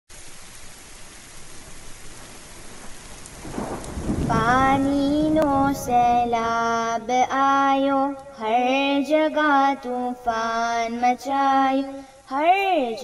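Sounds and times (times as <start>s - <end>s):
rain falling: 0.1s - 13.0s
low roll of thunder: 1.6s - 8.9s.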